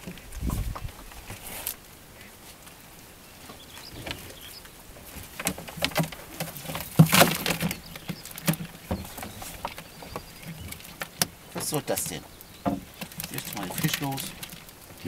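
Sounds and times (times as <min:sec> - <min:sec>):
net rustling and clattering: 0:03.4 - 0:15.0.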